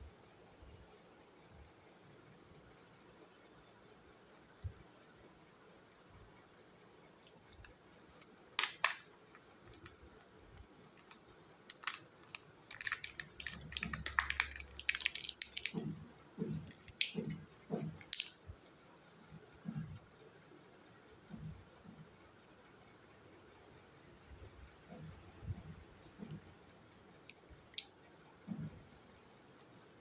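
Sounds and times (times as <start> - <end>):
sharp plastic clicks: 7.2 - 10.0, 10.6 - 15.9, 16.5 - 18.4
wrapper crinkling: 8.6 - 9.0, 11.0 - 15.9.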